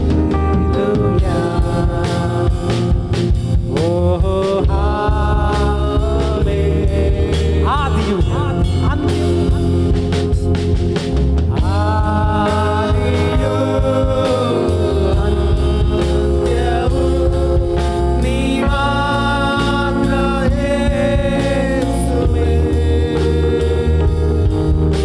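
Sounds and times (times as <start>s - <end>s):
band accompaniment with bass and drums: 0.0s - 25.0s
person singing sustained notes: 11.5s - 25.0s.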